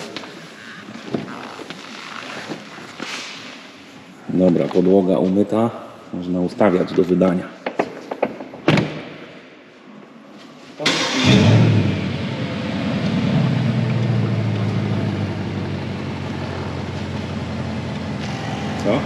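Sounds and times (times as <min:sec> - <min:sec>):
car engine starting and idling: 0:10.8 - 0:19.0.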